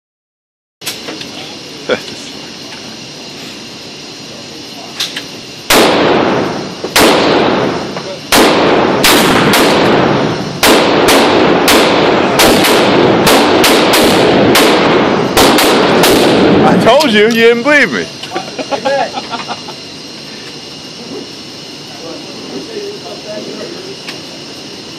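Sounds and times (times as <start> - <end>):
gunshots ringing indoors: 5.7 - 16.7.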